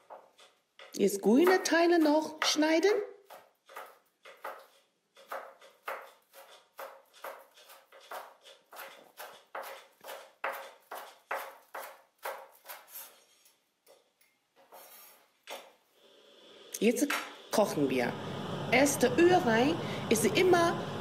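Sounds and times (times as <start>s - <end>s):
cleaver chopping on wooden board: 3.3s - 12.8s.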